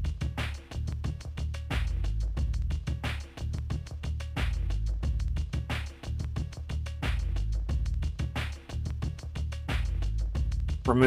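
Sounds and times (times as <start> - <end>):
music with steady beat and bass: 0.0 - 11.0.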